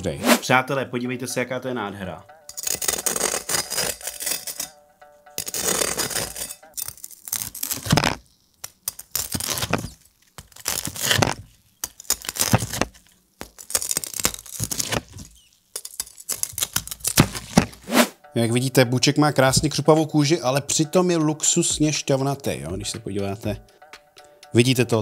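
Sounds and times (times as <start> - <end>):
cleaver crunching crackling skin: 5.5 - 17.8.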